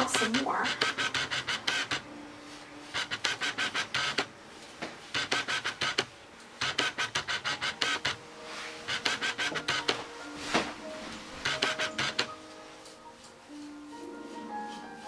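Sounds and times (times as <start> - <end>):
stripping knife rasping through fur: 0.0 - 2.1, 3.0 - 4.3, 5.2 - 8.2, 8.9 - 10.0, 11.4 - 12.4.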